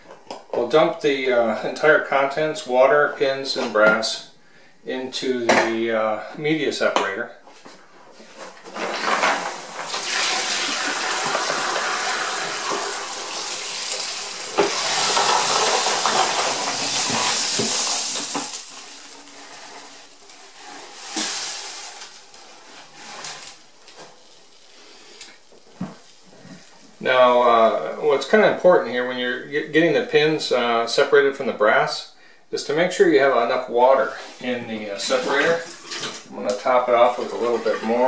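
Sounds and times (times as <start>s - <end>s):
water and metal pouring: 8.7s - 23.7s, 34.8s - 38.0s.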